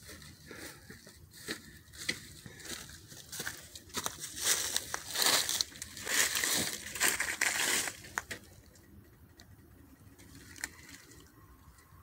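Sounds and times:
rustling crinkling handling noise: 0.0s - 8.6s.

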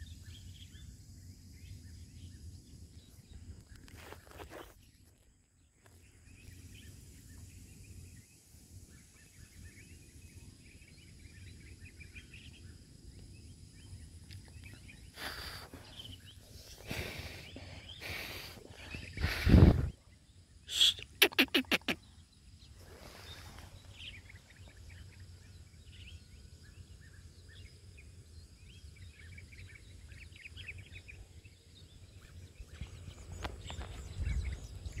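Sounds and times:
small birds chirping: 0.0s - 35.0s
harsh bird calls: 14.3s - 26.8s
wind rumbling on microphone: 15.8s - 20.4s, 28.5s - 35.0s.

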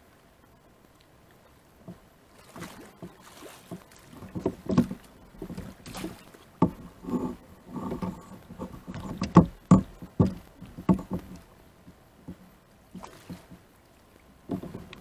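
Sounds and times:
sharp knocks: 3.7s - 6.9s, 7.8s - 11.4s.

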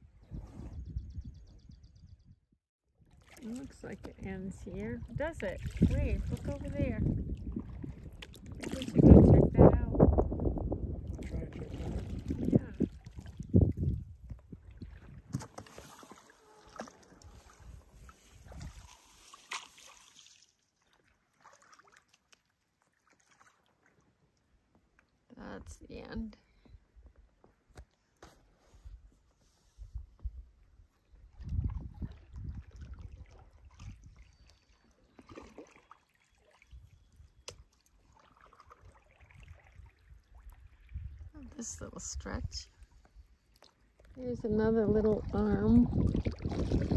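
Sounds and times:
water dripping from paddle: 7.3s - 9.3s, 18.6s - 25.2s, 31.4s - 41.4s, 42.8s - 44.2s
paddle strokes in water: 11.1s - 24.4s, 31.0s - 41.3s, 45.1s - 46.9s.

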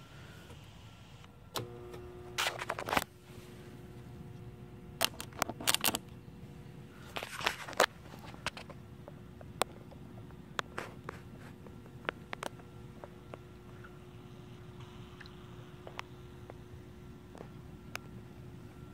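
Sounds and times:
battery charger humming: 1.2s - 18.9s
clamps clicking and crackling: 5.0s - 6.1s.

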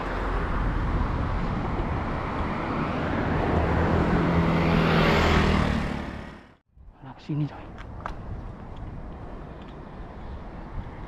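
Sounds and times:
car driving past: 2.7s - 6.5s.

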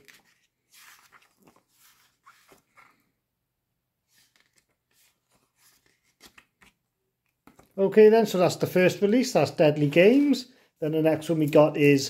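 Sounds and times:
paper rustling: 0.0s - 3.1s, 4.1s - 6.8s.

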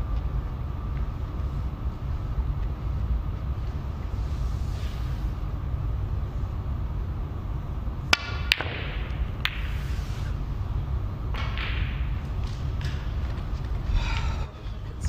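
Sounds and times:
low arena hum: 0.0s - 15.0s
cue striking ball: 8.0s - 10.4s, 11.3s - 13.5s
snooker balls clicking: 8.0s - 15.0s.

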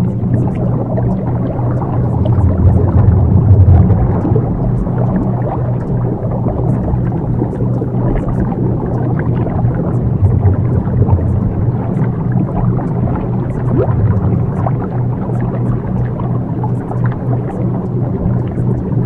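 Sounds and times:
dense rumbling noise: 0.0s - 19.0s
low pulsing tones hum: 0.0s - 19.0s.

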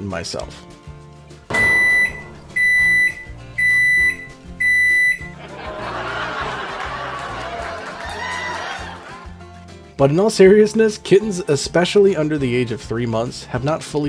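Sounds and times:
microwave oven beeping: 1.5s - 5.3s.

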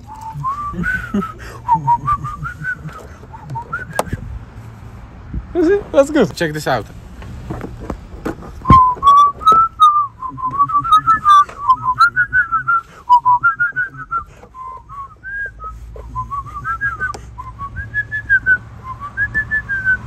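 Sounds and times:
person whistling a tune: 0.0s - 4.2s, 8.6s - 20.0s.

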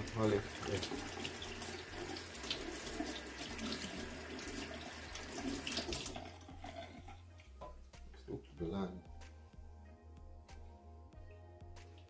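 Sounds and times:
tap running into sink: 0.0s - 6.3s
hands being washed: 0.0s - 7.8s.

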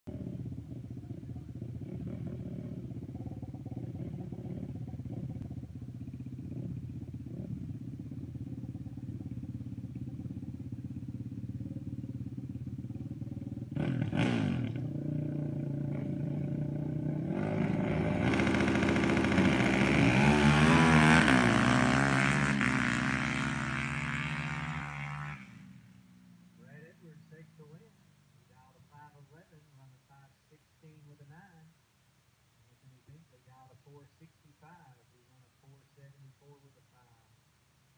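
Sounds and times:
quad engines idling: 0.1s - 21.7s
quad engines revving hard: 13.5s - 25.8s.

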